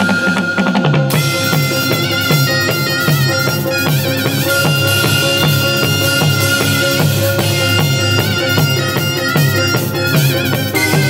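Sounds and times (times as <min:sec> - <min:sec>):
drums struck with sticks: 0:00.0 - 0:11.0
shawm playing wavering melody: 0:00.0 - 0:11.0.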